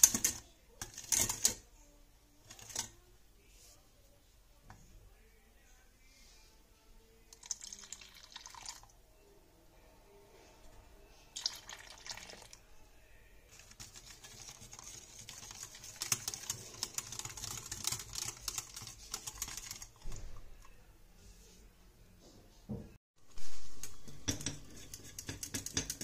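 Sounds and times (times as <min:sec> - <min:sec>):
milk splashing into saucepan: 0:07.3 - 0:08.9, 0:11.4 - 0:12.6
wire whisk clicking against pan: 0:24.2 - 0:26.0.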